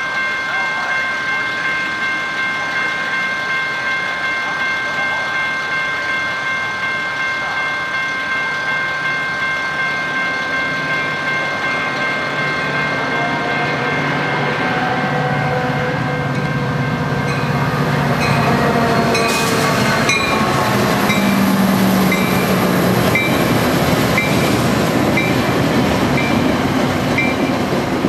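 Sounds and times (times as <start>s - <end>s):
railroad crossing bell ringing: 0.0s - 28.0s
train rumble: 0.1s - 28.0s.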